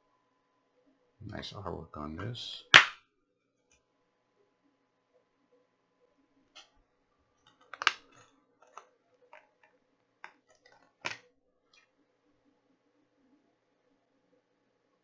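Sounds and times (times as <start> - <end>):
plastic case clicking: 7.5 - 11.2.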